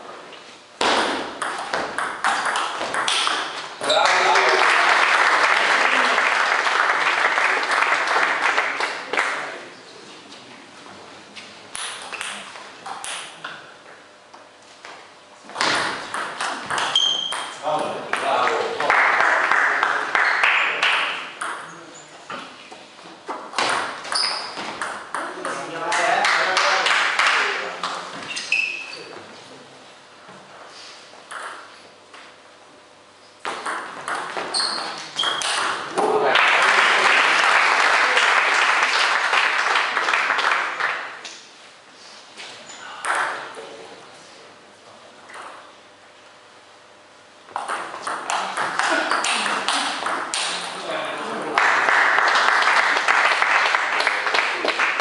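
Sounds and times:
spectators applauding: 3.8 - 9.6, 18.1 - 21.2, 25.9 - 27.8, 36.1 - 41.2, 51.2 - 55.0.

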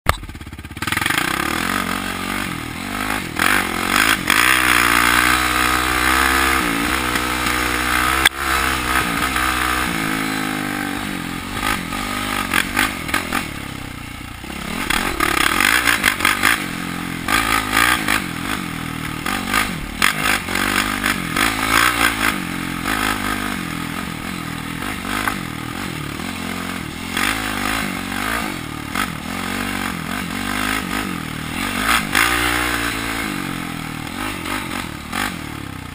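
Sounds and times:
atv engine revving: 0.1 - 35.9.

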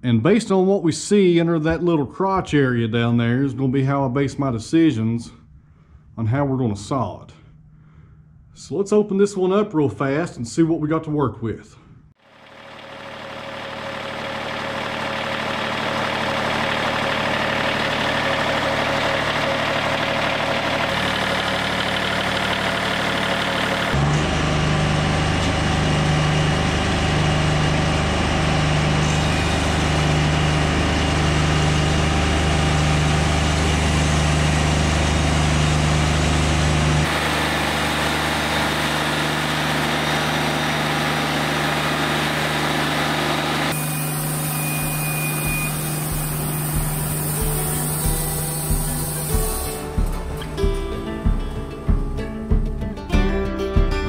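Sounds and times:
bandsaw mill cutting log: 12.3 - 50.7
pulsing low tone: 44.0 - 52.6.

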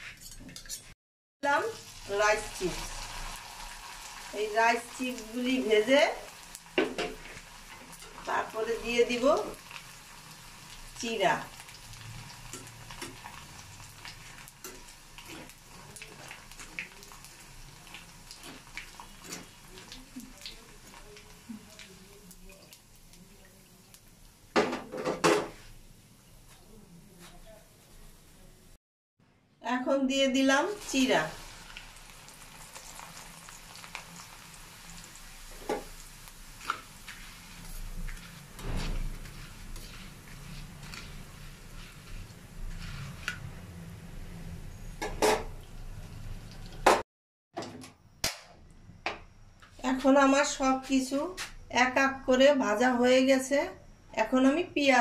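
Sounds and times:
food sizzling in hot oil: 1.4 - 26.7, 30.1 - 47.0
spatula scraping wire basket: 36.6 - 43.3.

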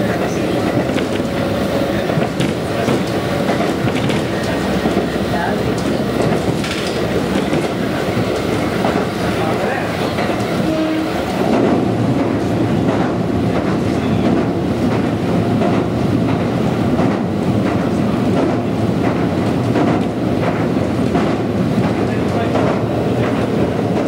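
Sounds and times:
train wheels rumbling on rails: 0.0 - 24.0
wheel clicks over rail joints: 5.7 - 9.0.

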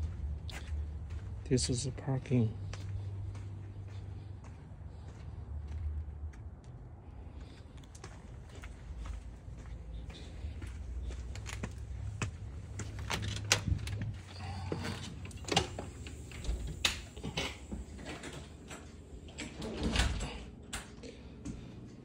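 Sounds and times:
door opening and shutting: 12.8 - 20.9
wind rumble on microphone: 13.5 - 14.2.

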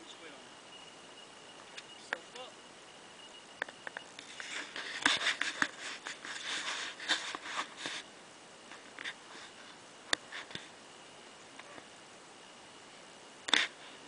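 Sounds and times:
rustling and clicking handling noise: 3.6 - 8.1.

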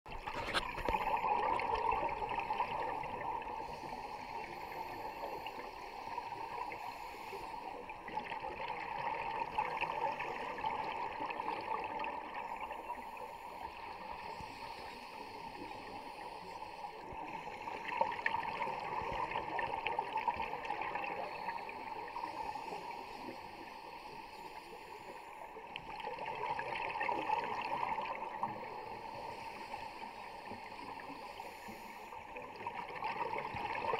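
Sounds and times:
diver's exhaled bubbles underwater: 0.1 - 6.8, 25.8 - 29.4, 32.4 - 33.9
steady watery hiss: 0.1 - 33.9.

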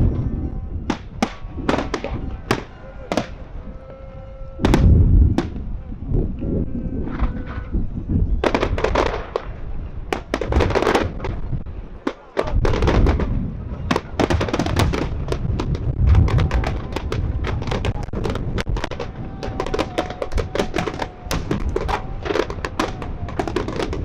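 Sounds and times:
fireworks booming: 0.8 - 3.5, 4.6 - 5.7, 8.4 - 24.0
fireworks crackling: 0.9 - 3.4, 8.4 - 24.0.

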